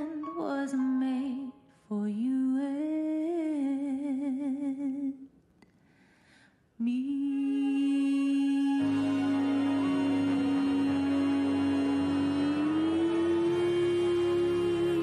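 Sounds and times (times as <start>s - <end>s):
woman singing solo: 6.8s - 15.0s.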